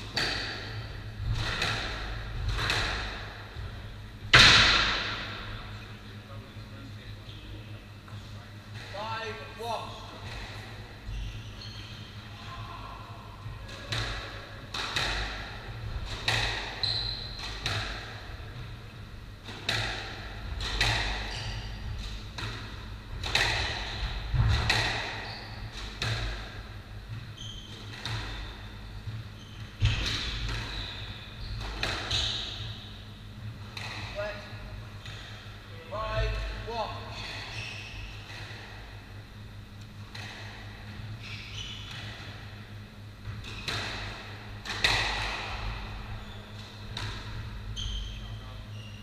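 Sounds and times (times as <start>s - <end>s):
shoes squeaking on wooden floor: 11.0s - 12.1s, 16.8s - 17.4s, 27.2s - 32.9s
squash ball cracking off rackets: 19.4s - 21.3s, 43.4s - 45.8s.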